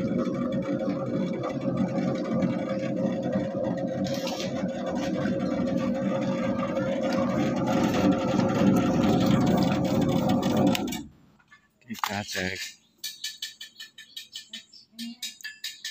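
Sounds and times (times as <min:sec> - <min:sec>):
dough mixer motor hum: 0:00.0 - 0:11.0.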